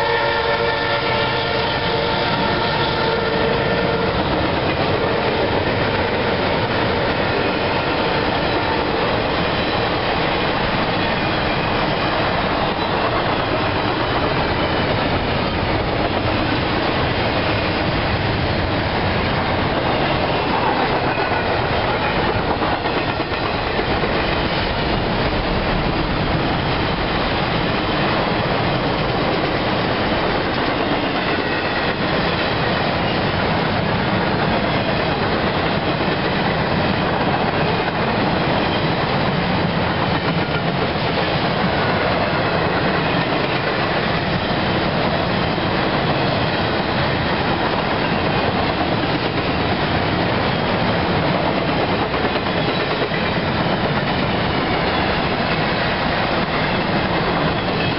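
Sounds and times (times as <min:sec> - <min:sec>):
freight train rolling by: 0:00.0 - 0:57.9
steel wheels clattering on rails: 0:03.0 - 0:57.9.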